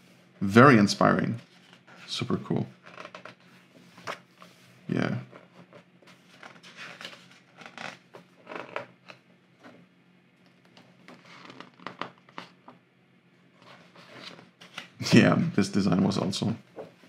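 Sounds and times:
paper page rustling: 5.3 - 9.2, 10.8 - 12.5.

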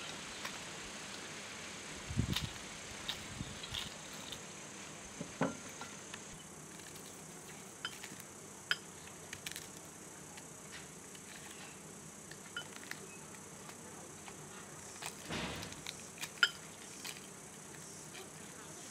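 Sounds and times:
faint high hiss: 0.0 - 18.9
onion skins crackling: 6.0 - 18.9.

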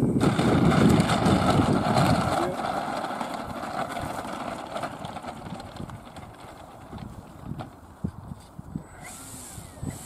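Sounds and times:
electric motor and propeller running: 0.0 - 10.0.

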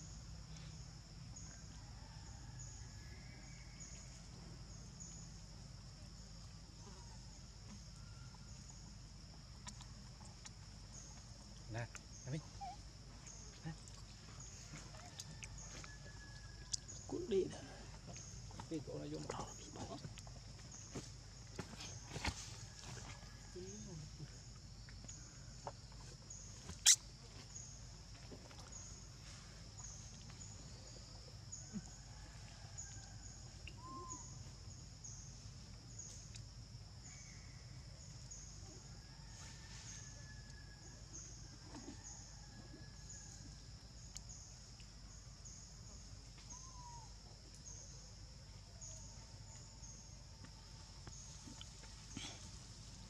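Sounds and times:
pulsing insect chorus: 0.0 - 53.0
faint chirps: 9.5 - 22.8, 23.4 - 53.0.

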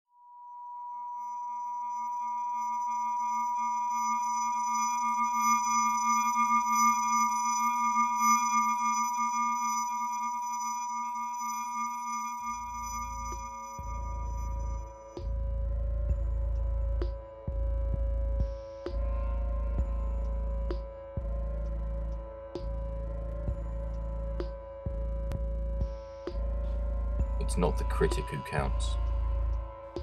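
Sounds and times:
sustained electronic tones: 2.6 - 16.1
deep low rumble: 13.8 - 22.0.

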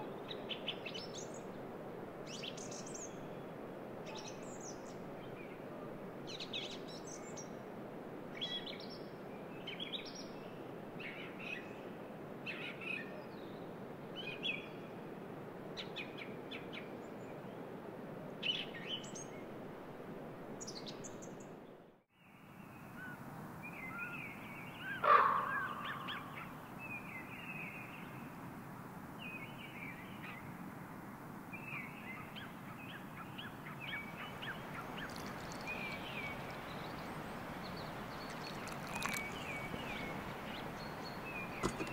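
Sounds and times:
loud coarse bird call: 24.8 - 26.6
low background hiss: 25.8 - 41.9
birds singing and calling: 31.6 - 41.9.

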